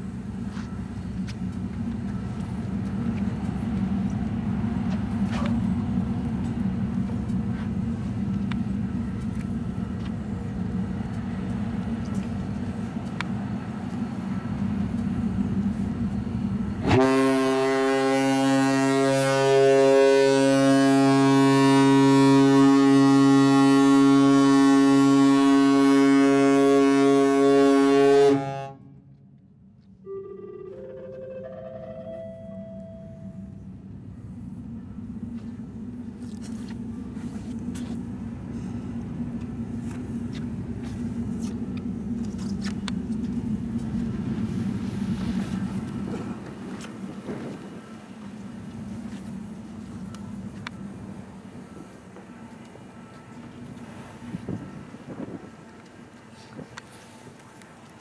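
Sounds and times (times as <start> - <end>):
ship's whistle deep blast: 16.8 - 29.0.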